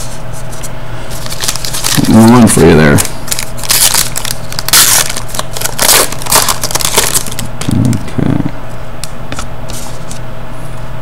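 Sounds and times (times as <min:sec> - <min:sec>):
cards being handled: 0:00.0 - 0:08.1
foil wrapper crinkling and tearing: 0:01.1 - 0:08.2.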